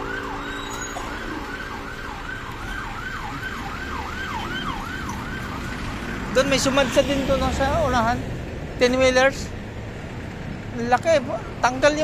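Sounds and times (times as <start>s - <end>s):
emergency siren yelping: 0.0s - 6.8s.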